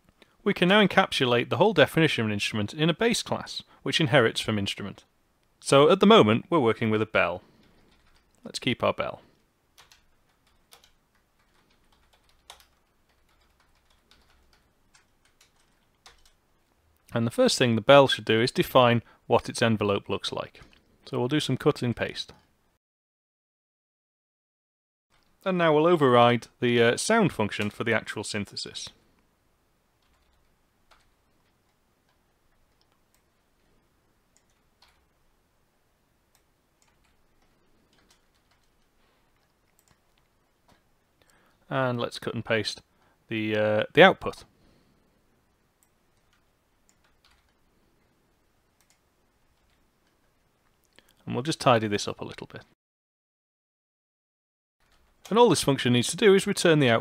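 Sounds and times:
computer keyboard keystrokes: 0:09.8 - 0:16.4, 0:36.3 - 0:38.8, 0:39.4 - 0:40.8, 0:46.2 - 0:47.6.

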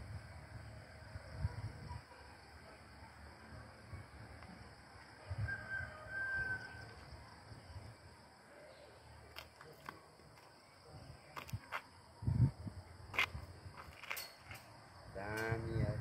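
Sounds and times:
wind rumble on microphone: 0:00.0 - 0:02.1, 0:05.2 - 0:08.0, 0:11.0 - 0:14.0, 0:15.0 - 0:16.0.

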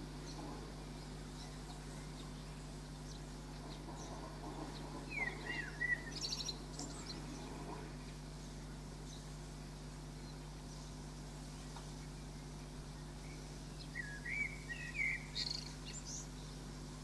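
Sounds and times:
bird chirps and trills: 0:00.0 - 0:17.0
steady low hum: 0:00.0 - 0:17.0.

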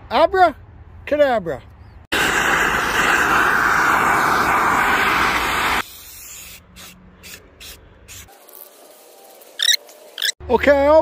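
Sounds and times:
gas torch flame hissing: 0:02.1 - 0:06.6.

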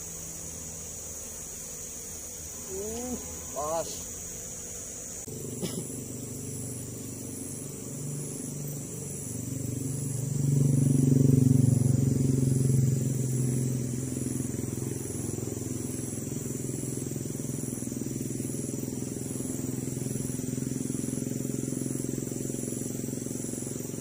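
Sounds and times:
vehicle engine passing: 0:07.8 - 0:24.0.

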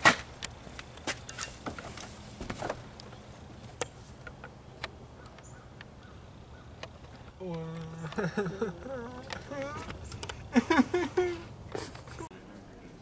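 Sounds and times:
faint low outdoor hum: 0:00.0 - 0:13.0.

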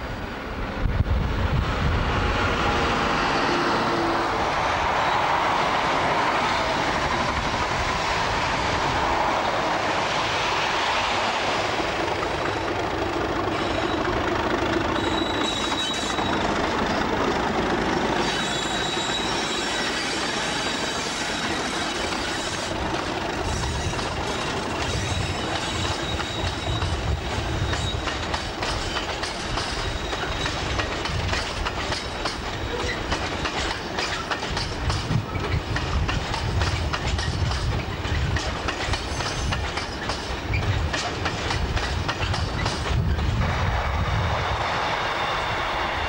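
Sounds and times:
diesel locomotive engines running: 0:00.0 - 0:46.0
rumble of wheels on rail: 0:00.0 - 0:46.0
high wheel squeal: 0:13.4 - 0:17.2, 0:18.0 - 0:22.8, 0:23.4 - 0:30.9, 0:32.5 - 0:34.4, 0:44.9 - 0:46.0.

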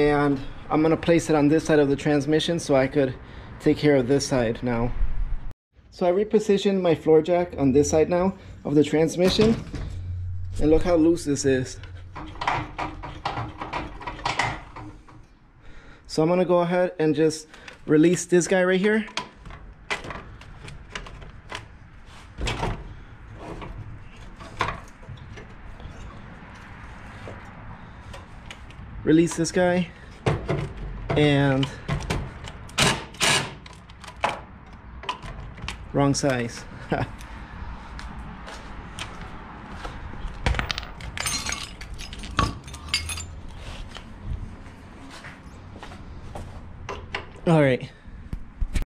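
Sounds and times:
metal tools clanking on concrete: 0:40.5 - 0:43.4.

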